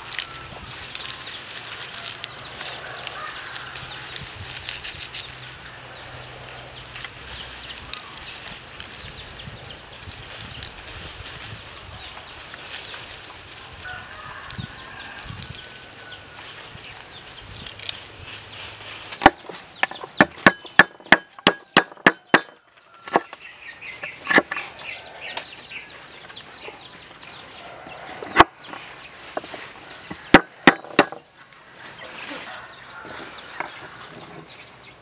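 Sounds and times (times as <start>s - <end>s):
cleaver chopping on wooden board: 19.2s - 23.3s, 30.1s - 31.2s
chickens clucking: 21.6s - 35.0s.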